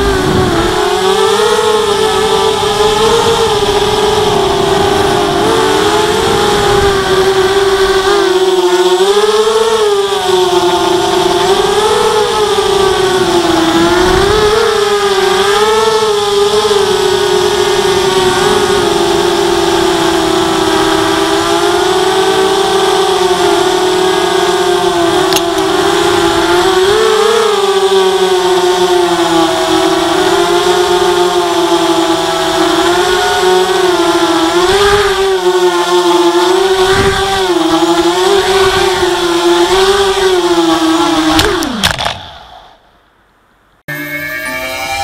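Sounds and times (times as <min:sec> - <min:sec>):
low rush of air: 0:00.0 - 0:01.0
quadcopter motors whining: 0:00.0 - 0:42.8.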